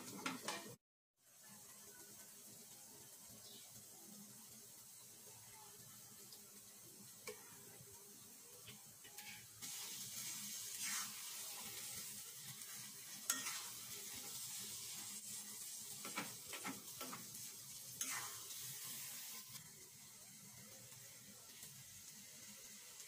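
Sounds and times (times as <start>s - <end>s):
spatula scraping and knocking pan: 0.0s - 0.8s, 13.3s - 14.4s, 16.0s - 18.5s
pickle sizzling in a pan: 0.0s - 23.0s.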